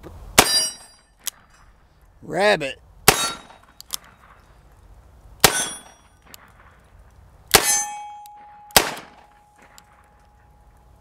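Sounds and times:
short metallic ring: 0.4 - 1.2, 5.5 - 6.1, 7.6 - 8.8.

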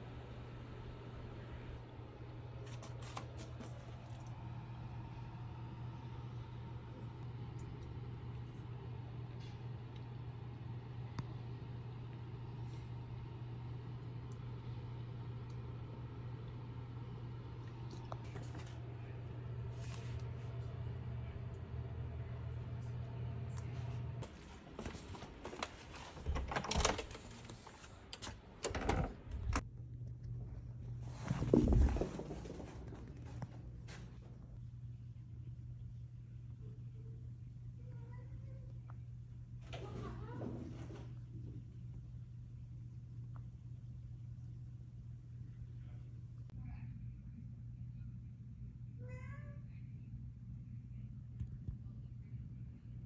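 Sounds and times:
steady low hum: 0.0 - 53.0
door being unlatched and opened: 26.2 - 27.5, 28.2 - 29.6.

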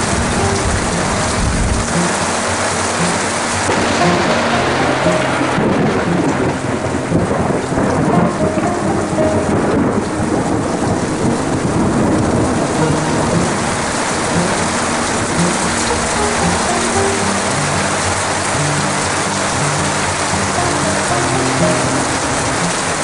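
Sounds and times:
heavy rain downpour: 0.0 - 23.0
water streaming off roof edge: 0.0 - 23.0.

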